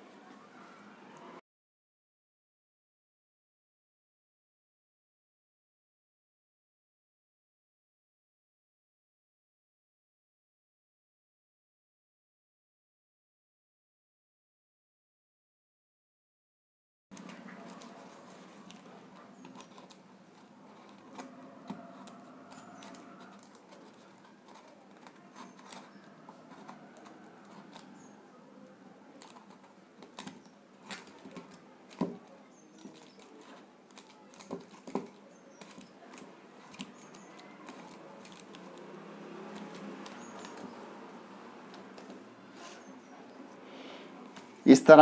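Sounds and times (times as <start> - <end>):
faint background noise: 0.0 - 1.4, 17.1 - 45.0.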